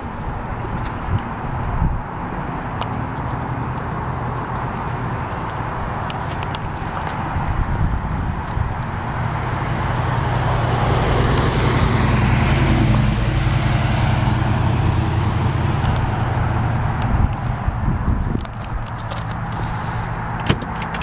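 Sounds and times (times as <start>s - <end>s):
idling engine hum: 0.0s - 21.0s
car driving past: 9.2s - 16.9s.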